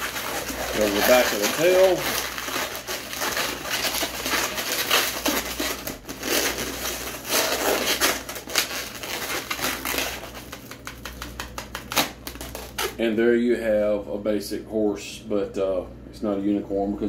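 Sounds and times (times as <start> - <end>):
balloons rubbing and crinkling: 0.0 - 13.1.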